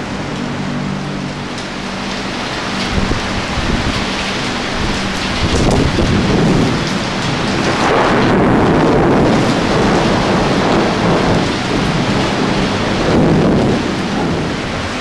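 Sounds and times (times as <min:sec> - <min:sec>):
heavy rain pouring: 0:00.0 - 0:15.0
thunder rumbling: 0:00.0 - 0:15.0.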